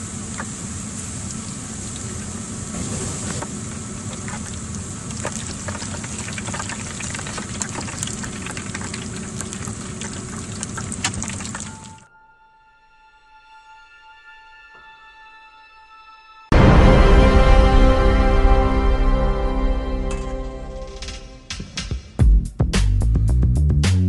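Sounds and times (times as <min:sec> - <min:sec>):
food deep-frying in oil: 0:00.0 - 0:12.1.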